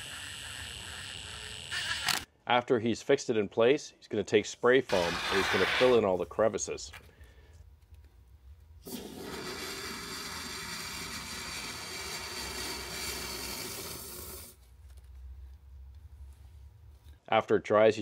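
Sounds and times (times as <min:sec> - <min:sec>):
aerosol spray foam hissing: 0:04.9 - 0:06.0, 0:09.2 - 0:14.6.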